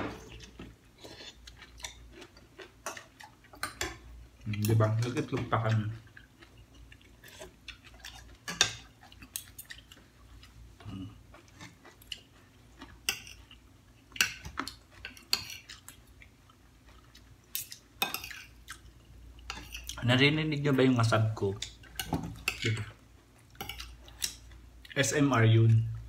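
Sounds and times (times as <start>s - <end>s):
quiet chewing: 0.3s - 20.0s
cutlery clinking against bowls: 8.4s - 9.8s, 13.0s - 13.5s, 14.1s - 15.8s, 17.6s - 18.6s, 19.5s - 20.0s, 21.6s - 23.0s, 23.6s - 24.4s.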